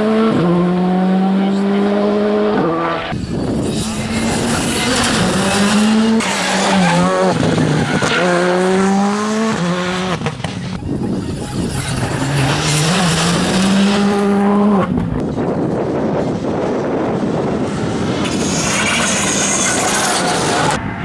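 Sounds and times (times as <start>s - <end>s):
rally cars accelerating past: 11.6s - 15.1s.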